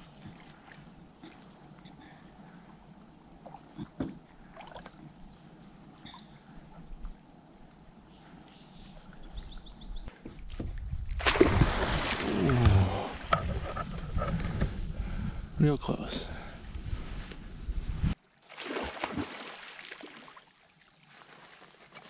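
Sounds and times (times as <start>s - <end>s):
canoe paddle dipping: 0.0s - 14.8s, 18.2s - 22.0s
water rushing and splashing: 18.4s - 22.0s.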